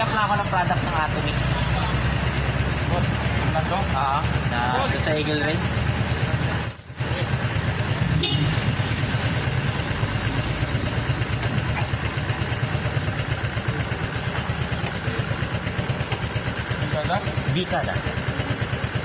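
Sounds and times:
road and air noise: 0:00.0 - 0:17.1
motorcycle engine running: 0:00.0 - 0:19.0.

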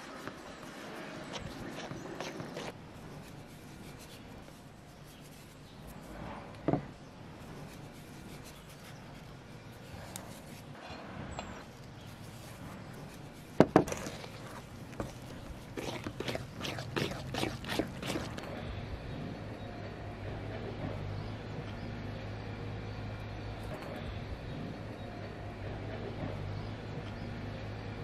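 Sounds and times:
spoon stirring thick batter: 0:00.0 - 0:06.0, 0:12.0 - 0:18.6.

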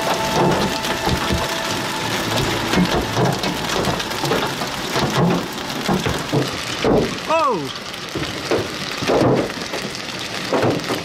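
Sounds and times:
hail and rain on vehicle roof: 0:00.0 - 0:11.0.

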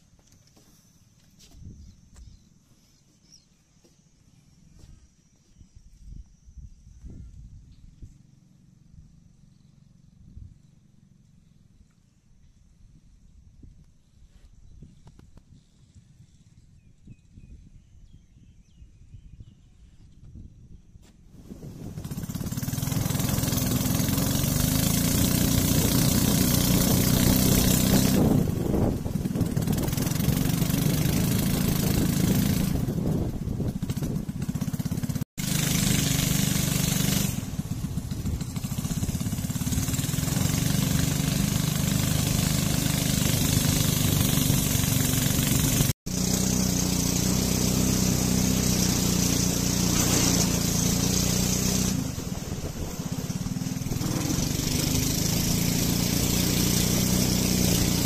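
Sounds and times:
boat engine running: 0:21.4 - 0:58.0.

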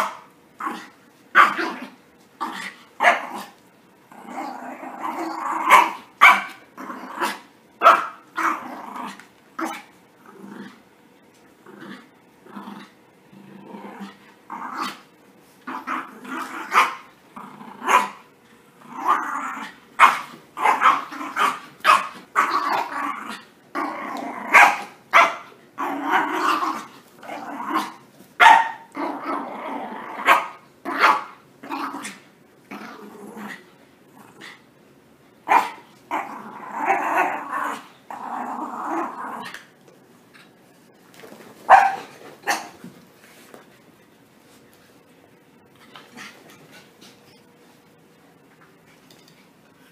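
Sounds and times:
puppies play growling: 0:00.6 - 0:07.6, 0:08.2 - 0:34.7, 0:35.5 - 0:48.0.

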